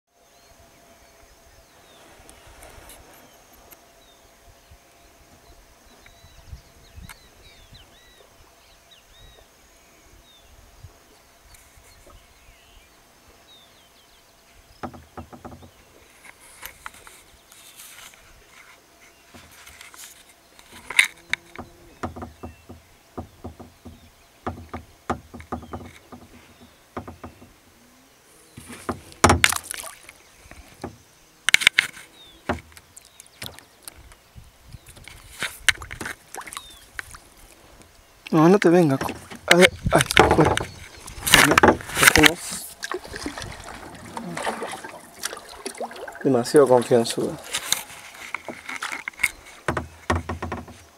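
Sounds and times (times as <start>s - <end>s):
faint bird chirping: 0.1s - 29.2s, 29.8s - 35.4s, 36.2s - 50.9s
paddle knocks: 14.8s - 15.8s, 21.3s - 27.6s, 28.6s - 30.0s, 38.6s - 50.9s
paddle splashing in water: 28.6s - 31.0s, 34.9s - 37.6s, 38.8s - 50.8s
water dripping: 35.7s - 47.8s.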